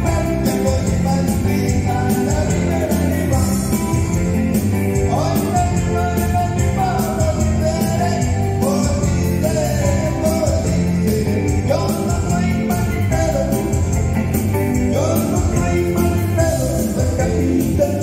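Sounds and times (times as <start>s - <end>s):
bouncing bass beat: 0.0s - 18.0s
keyboard dance music: 0.0s - 18.0s
person singing: 0.0s - 18.0s.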